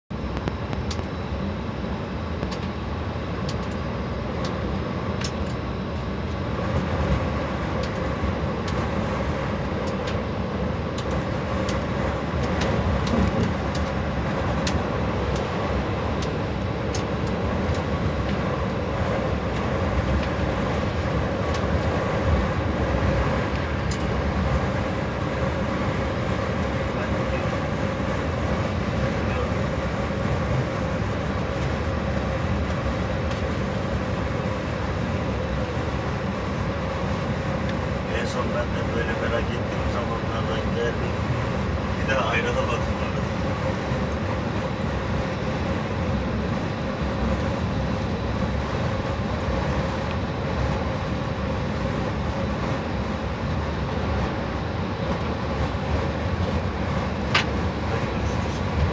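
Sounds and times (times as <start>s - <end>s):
coach engine and tyre noise: 0.1s - 58.9s.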